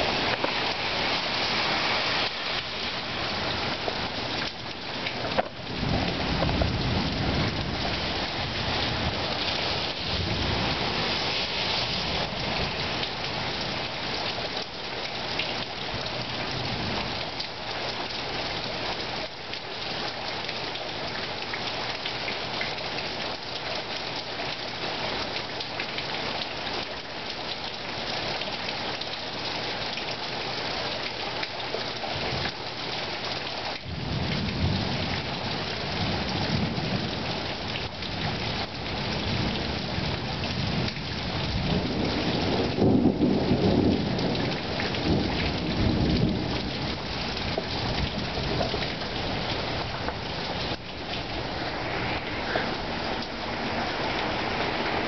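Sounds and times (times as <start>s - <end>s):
heavy rain hiss: 0.0s - 55.0s
thunder rumbling: 3.1s - 11.3s, 40.5s - 55.0s.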